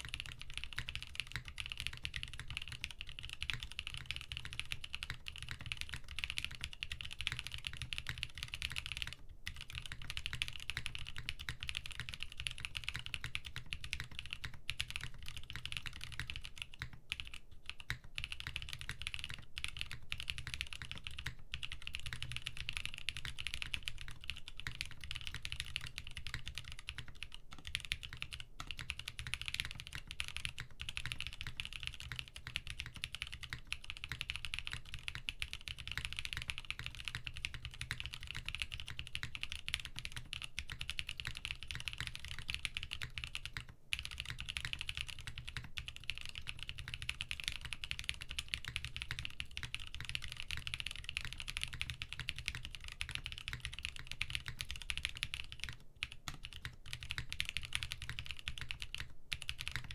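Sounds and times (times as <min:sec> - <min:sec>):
fast typing on mechanical keyboard: 0:00.0 - 0:59.9.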